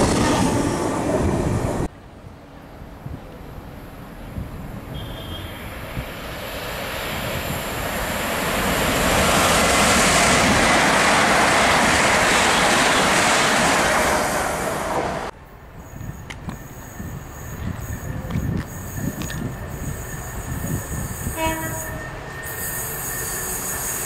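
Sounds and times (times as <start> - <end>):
train passing: 0.0 - 24.0
wheel and rail rush: 0.0 - 24.0.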